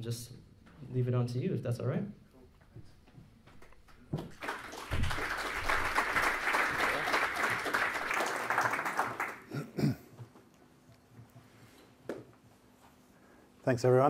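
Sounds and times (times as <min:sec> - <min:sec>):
audience applauding: 0:04.1 - 0:09.8.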